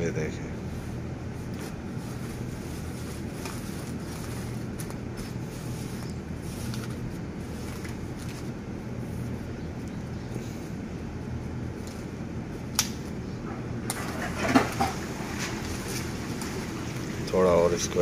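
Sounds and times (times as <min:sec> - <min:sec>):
low machine hum: 0:00.0 - 0:18.0
hands rustling peat: 0:01.3 - 0:10.7.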